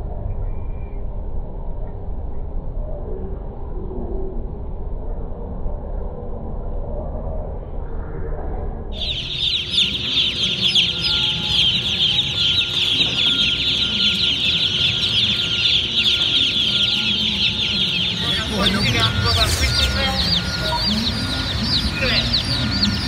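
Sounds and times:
baby chicks peeping: 9.0 - 23.0.

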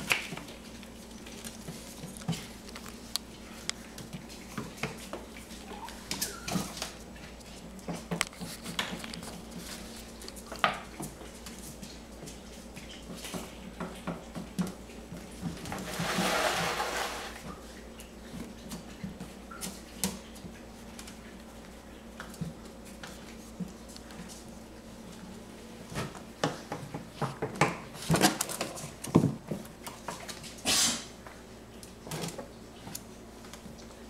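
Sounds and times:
scraping rustle: 15.8 - 17.4.

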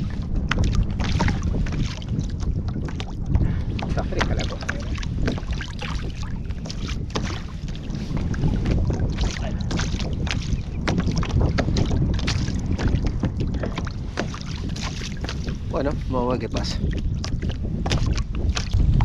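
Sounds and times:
waves lapping against kayak hull: 0.0 - 19.0
wind buffeting microphone: 0.0 - 19.0.

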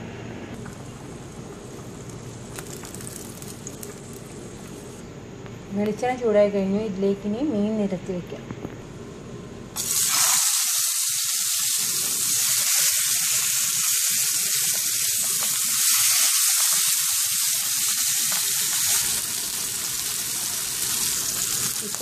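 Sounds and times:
fish sizzling in a frying pan: 1.0 - 5.0, 9.8 - 22.0.

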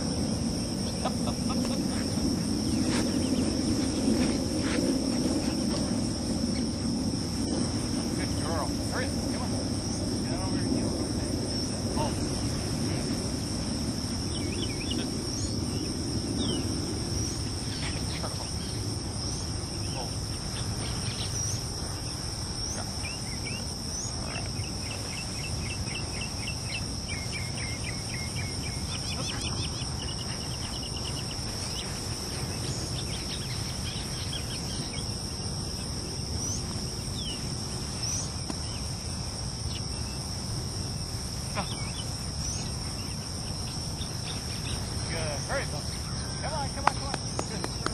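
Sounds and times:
high-pitched insect chorus: 0.0 - 47.9
insect chirps: 0.0 - 47.9.

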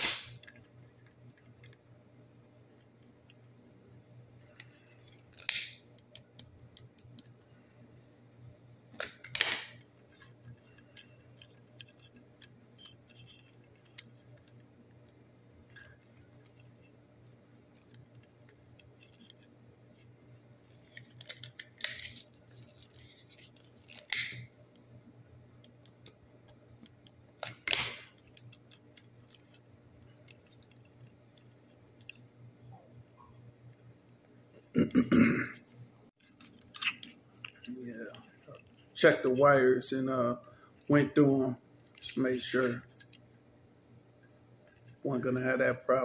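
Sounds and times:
low steady hum: 0.0 - 46.0
wires and connectors clicking: 4.4 - 7.5, 8.9 - 24.5, 25.6 - 32.7, 36.2 - 39.2.

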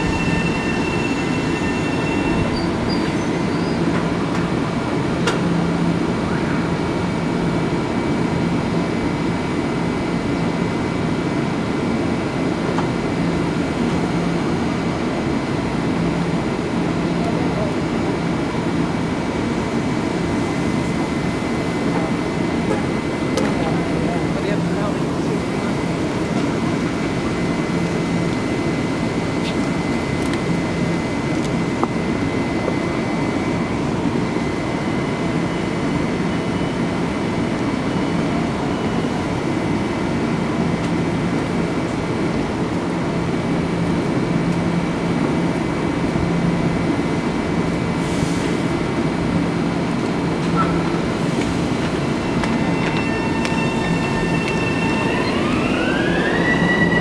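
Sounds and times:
traction motors rising whine: 0.0 - 4.6, 50.4 - 57.0
train equipment humming: 0.0 - 57.0.

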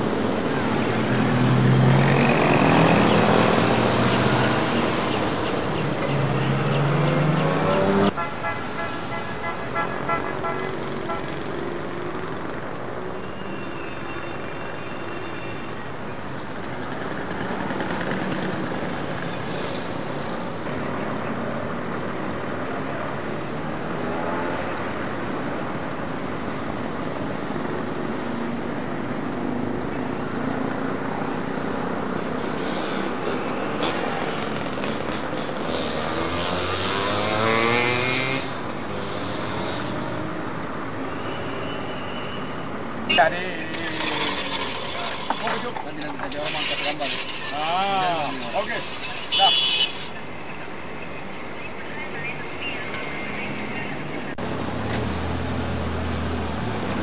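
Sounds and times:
vehicles passing: 0.0 - 57.0
engine revving up: 6.1 - 8.1, 32.5 - 40.4.

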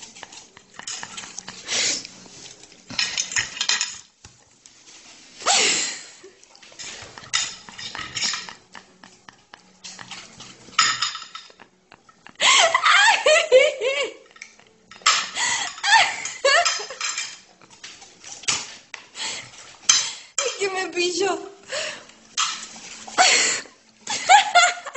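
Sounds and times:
cutlery clinking on dishes: 0.0 - 4.1, 6.4 - 12.2, 14.2 - 20.8, 22.2 - 23.3.

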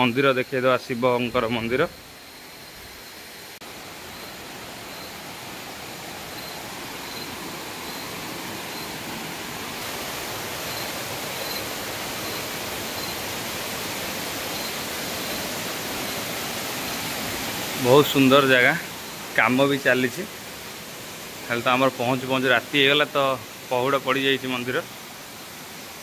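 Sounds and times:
waterfall rushing: 3.6 - 26.0.

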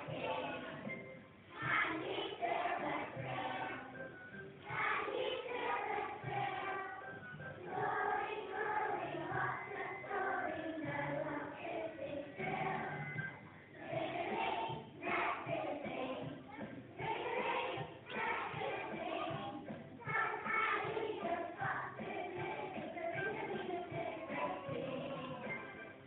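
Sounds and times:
children singing in chorus: 1.6 - 3.9, 4.7 - 7.0, 7.7 - 13.0, 17.0 - 25.5.

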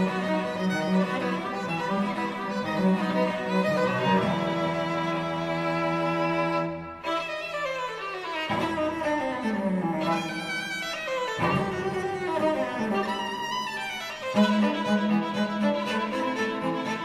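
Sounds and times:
orchestral string music: 0.0 - 17.0.

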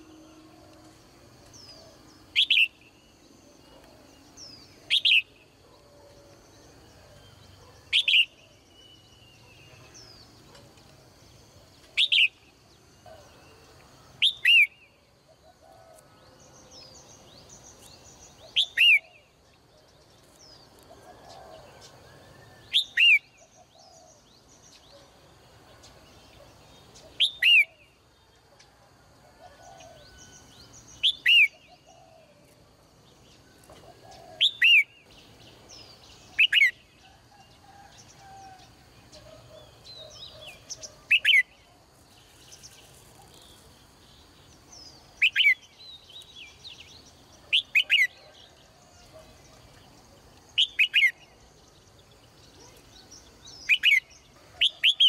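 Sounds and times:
faint bird chirps: 33.4 - 55.0.

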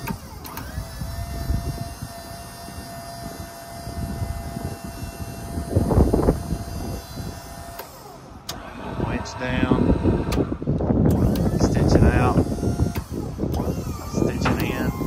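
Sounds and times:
hydraulic pump whine: 0.0 - 15.0.

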